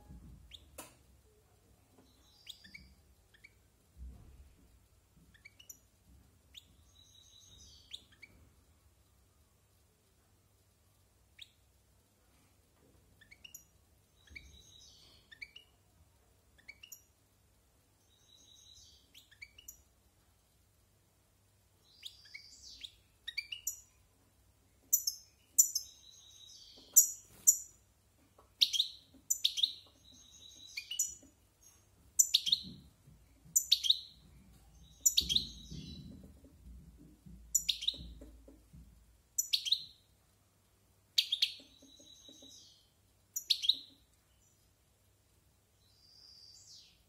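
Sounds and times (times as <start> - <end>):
goldfinch singing: 28.6 - 31.3, 32.2 - 32.8, 33.6 - 34.2, 34.8 - 36.2, 37.5 - 38.2, 39.4 - 40.0, 41.2 - 42.8, 43.4 - 44.0.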